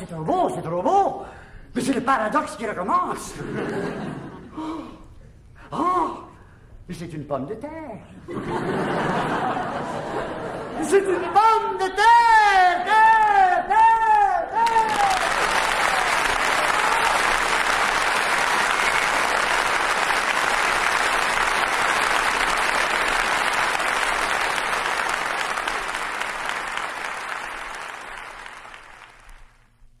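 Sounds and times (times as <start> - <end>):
audience applauding: 14.6 - 29.8.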